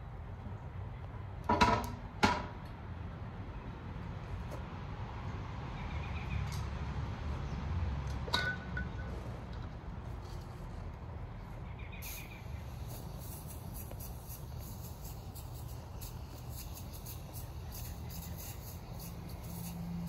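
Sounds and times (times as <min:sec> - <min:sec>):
steady low rumble: 0:09.1 - 0:20.0.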